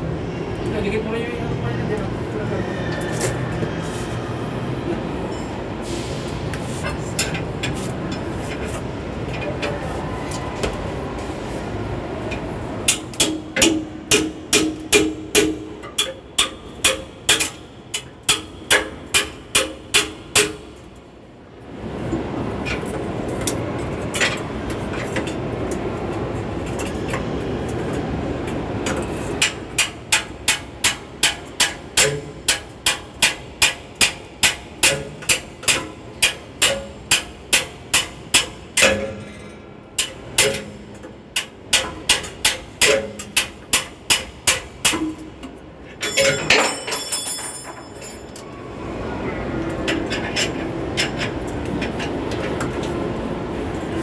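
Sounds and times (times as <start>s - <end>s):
hand tool knocking on metal: 12.9s - 20.7s, 29.4s - 39.2s.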